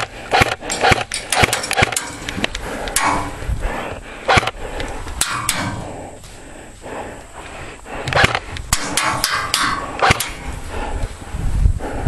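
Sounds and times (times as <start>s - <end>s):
airsoft gunfire cracks: 0.0s - 2.1s, 4.3s - 4.6s, 8.1s - 10.4s.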